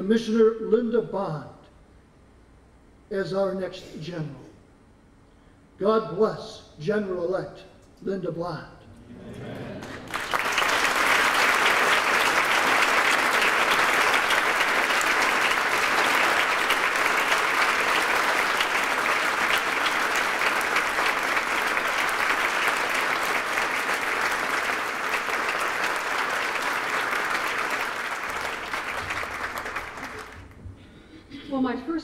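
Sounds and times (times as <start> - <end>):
people applauding: 9.4 - 30.6.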